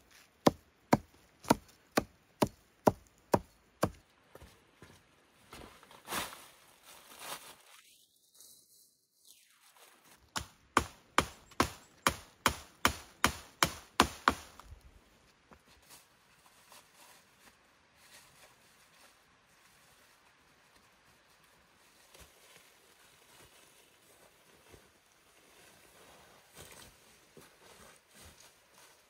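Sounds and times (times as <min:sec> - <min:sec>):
hatchet chopping branch: 0:00.4 - 0:04.0, 0:10.4 - 0:14.7
rustling of boughs: 0:04.8 - 0:10.4.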